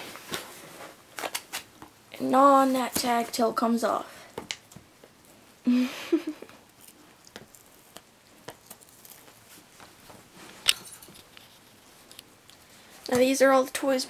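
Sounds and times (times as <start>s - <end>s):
dog teeth crackling on card: 6.7s - 9.9s.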